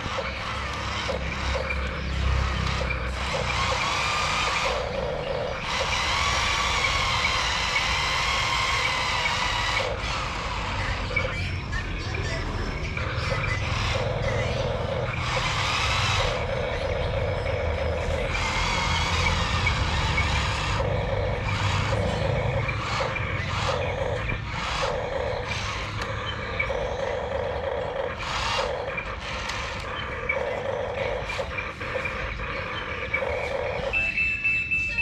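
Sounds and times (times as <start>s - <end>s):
electric gear motors whining: 0.0s - 34.2s.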